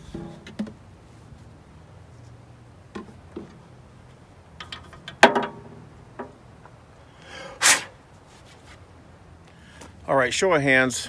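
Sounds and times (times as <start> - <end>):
short scrape: 7.6 - 8.8.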